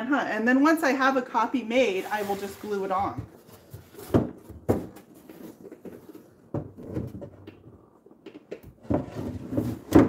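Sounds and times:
wooden drawer knocking and scraping: 8.8s - 10.0s.

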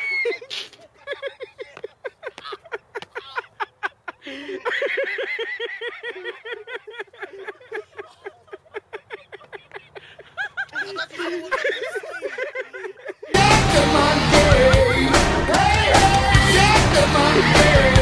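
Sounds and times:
person laughing: 0.0s - 13.5s
higher-pitched laugh: 0.0s - 13.6s.

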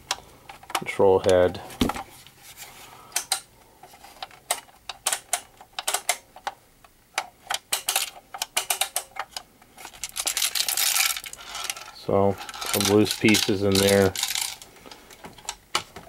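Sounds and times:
loose pieces rattling inside radio: 7.6s - 15.9s.

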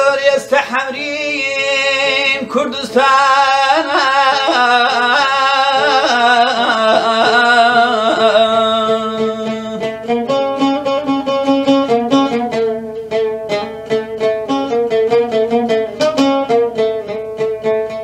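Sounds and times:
man singing slow melody: 0.0s - 10.1s
plucked oud: 0.0s - 18.0s.

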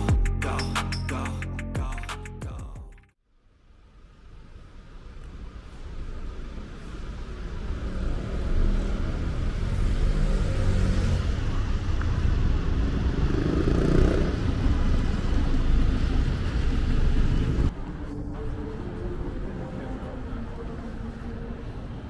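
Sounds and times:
vehicle engine rumbling: 4.4s - 22.0s.

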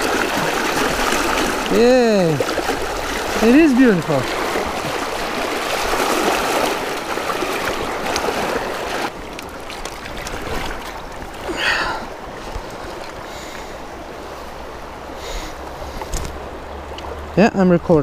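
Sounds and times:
fish thrashing in water: 0.0s - 11.9s
river current rushing: 0.0s - 18.0s.

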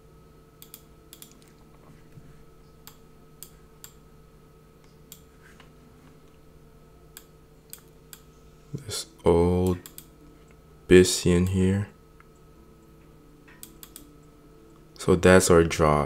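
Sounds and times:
low electrical hum: 0.0s - 16.0s
computer mouse clicks: 0.6s - 1.6s, 4.8s - 5.3s, 7.2s - 8.3s, 9.6s - 10.1s, 13.5s - 14.1s.

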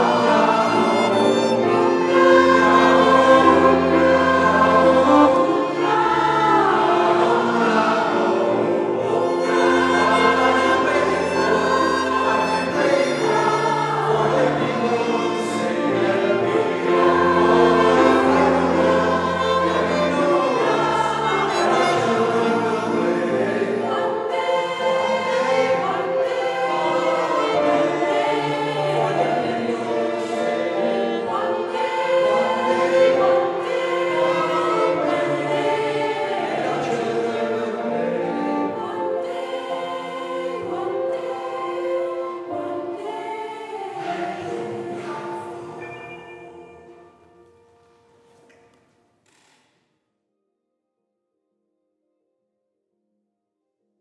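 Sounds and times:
mixed choir singing: 0.0s - 47.8s
grand piano: 0.0s - 49.1s
violin: 0.0s - 49.6s.

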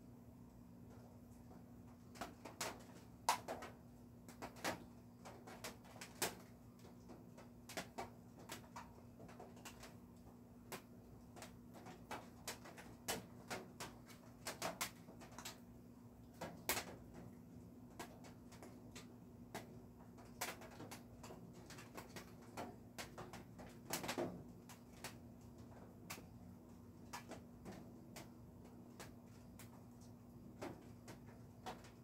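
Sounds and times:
light clicks and taps: 16.2s - 32.0s.

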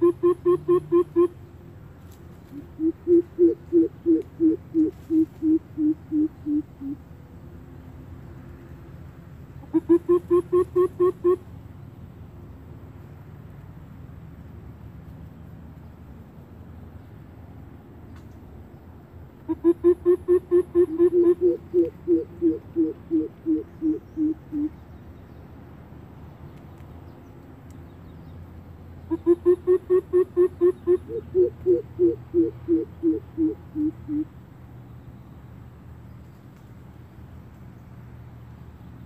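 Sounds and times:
bird hooting call: 0.0s - 1.4s, 2.5s - 7.0s, 9.6s - 11.4s, 19.4s - 24.8s, 29.1s - 34.3s.

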